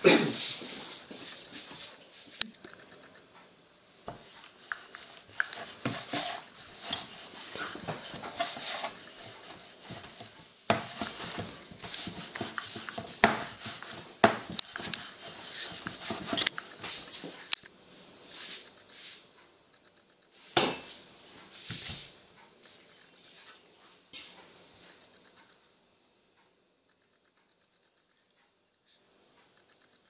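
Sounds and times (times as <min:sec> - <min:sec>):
rolling scraping rustle: 0:04.2 - 0:17.4
rolling pin knocking on wood: 0:10.7 - 0:14.9.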